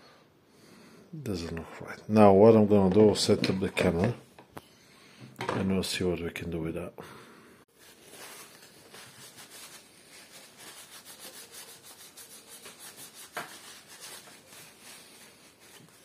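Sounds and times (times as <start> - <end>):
tissue rubbing on metal: 7.7 - 16.0.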